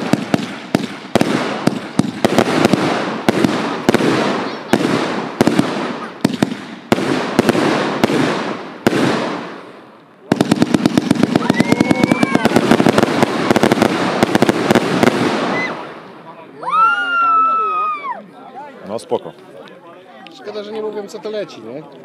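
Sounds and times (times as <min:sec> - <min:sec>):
fireworks banging: 0:00.0 - 0:16.3.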